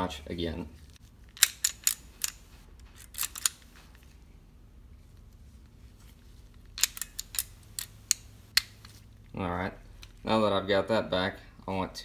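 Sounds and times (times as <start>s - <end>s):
pistol slide metallic clicks: 1.3s - 2.4s, 3.0s - 3.7s, 6.8s - 8.9s.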